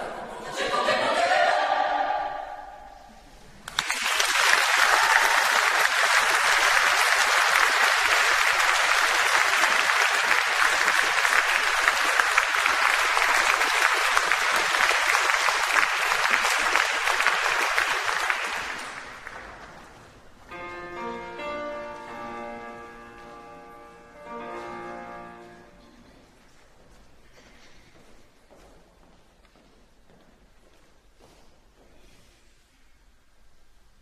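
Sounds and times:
audience applauding: 3.6 - 20.0.

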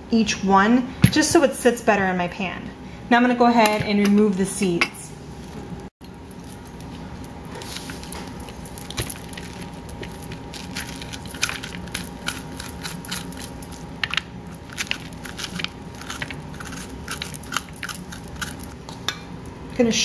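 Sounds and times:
spoon scraping squash: 6.3 - 18.8.

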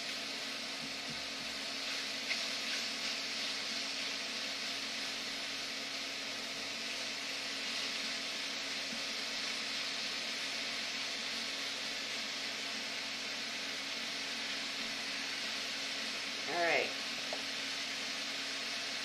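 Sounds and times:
mushrooms and onions sizzling in a skillet: 0.0 - 19.0
spatula stirring: 0.9 - 5.3.

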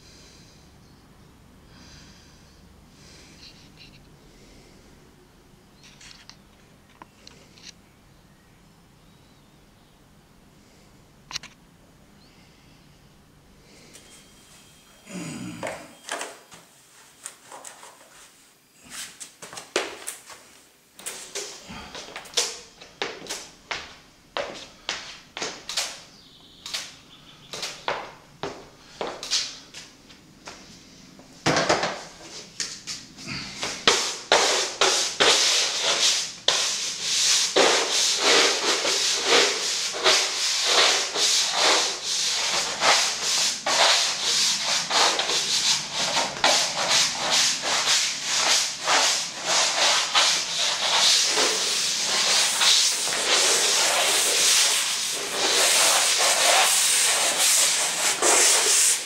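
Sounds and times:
broom brushing paint on canvas: 33.8 - 59.0.

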